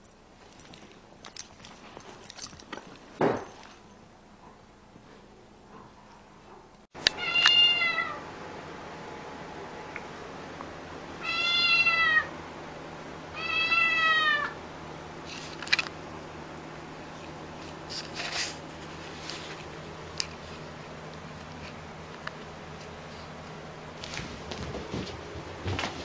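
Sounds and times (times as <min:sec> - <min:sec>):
kitten meowing: 0:07.1 - 0:08.2, 0:11.2 - 0:12.3, 0:13.4 - 0:14.6.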